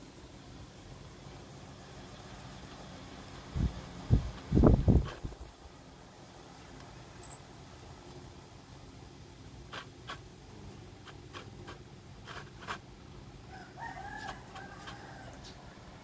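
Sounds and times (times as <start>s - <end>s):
distant rooster crowing: 13.4s - 16.0s.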